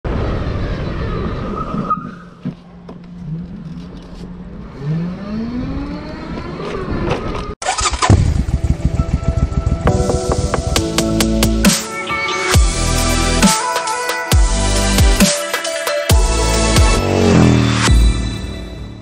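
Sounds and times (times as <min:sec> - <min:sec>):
vehicle engine speeding up: 0:03.2 - 0:10.9, 0:16.9 - 0:18.9
pulsing electronic music: 0:08.1 - 0:18.6.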